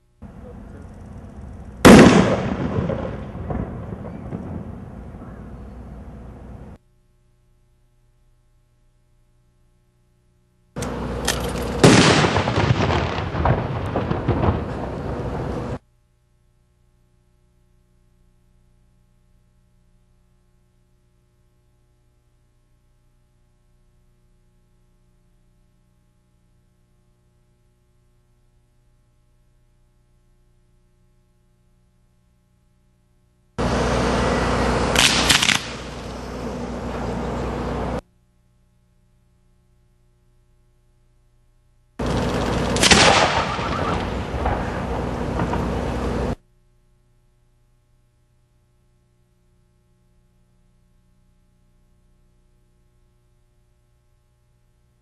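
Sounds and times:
firework pops and crackling: 0:01.8 - 0:04.7, 0:10.8 - 0:15.5, 0:34.9 - 0:36.3, 0:42.0 - 0:45.8
firework bang: 0:01.8 - 0:05.3, 0:11.6 - 0:15.8, 0:34.9 - 0:36.4, 0:42.0 - 0:46.3
firework hissing: 0:33.6 - 0:38.0, 0:42.0 - 0:46.4.

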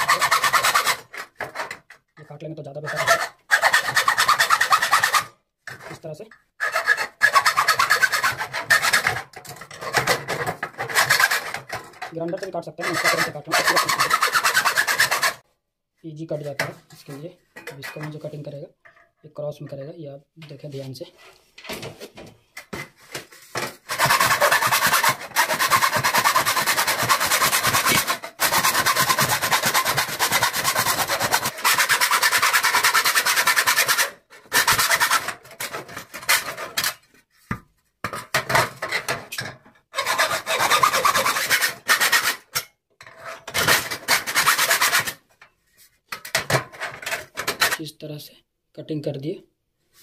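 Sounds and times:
hacksaw cutting sheet steel: 0:00.0 - 0:01.8, 0:02.8 - 0:05.3, 0:06.6 - 0:15.4, 0:23.6 - 0:37.0, 0:40.0 - 0:45.2.

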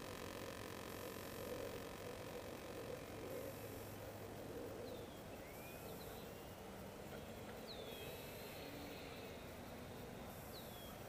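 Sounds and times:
background hiss: 0:00.0 - 0:11.0
distant model plane whine: 0:00.0 - 0:11.0.

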